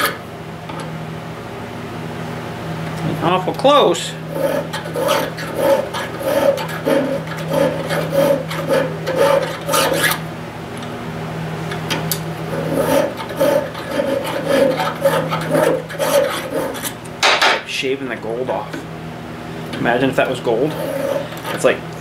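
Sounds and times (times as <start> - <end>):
hand file rasping on metal: 4.3 - 10.2, 12.5 - 17.0, 20.6 - 21.7.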